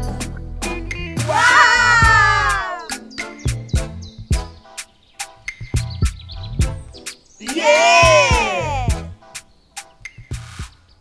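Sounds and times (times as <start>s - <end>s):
upbeat background music: 0.0s - 10.8s.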